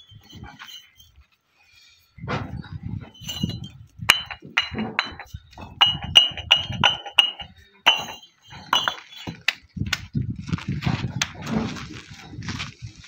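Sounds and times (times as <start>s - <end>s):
bricks clinking together: 3.0s - 9.6s.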